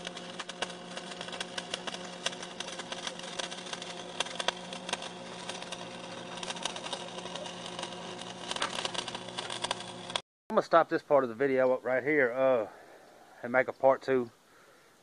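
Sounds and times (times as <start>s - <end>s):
welding arc crackling: 0.0s - 10.2s.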